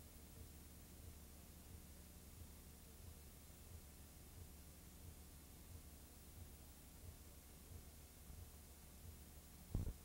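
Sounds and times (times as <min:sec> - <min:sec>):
tape hum and hiss: 0:00.0 - 0:10.0
short low thump: 0:09.7 - 0:10.0.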